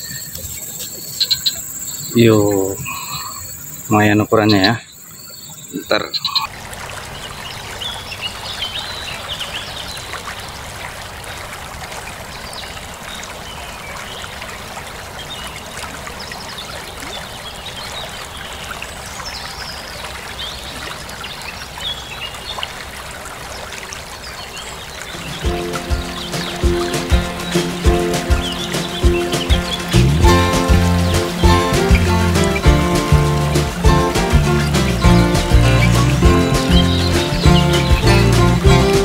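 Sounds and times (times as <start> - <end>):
faint high chirps: 0.0 - 6.5
stream water trickling: 0.0 - 39.0.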